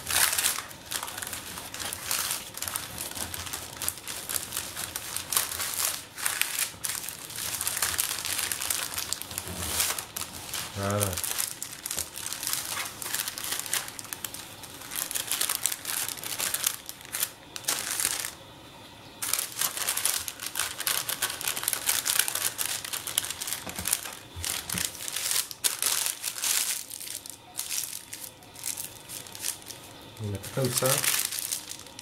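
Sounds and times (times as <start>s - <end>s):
paper crinkling and rustling: 0.0s - 18.4s, 19.2s - 32.0s.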